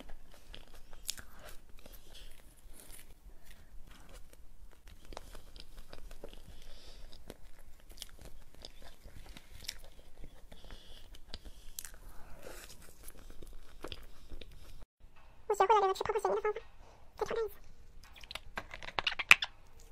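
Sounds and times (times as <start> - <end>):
chewing with crunchy clicks: 0.0 - 14.9.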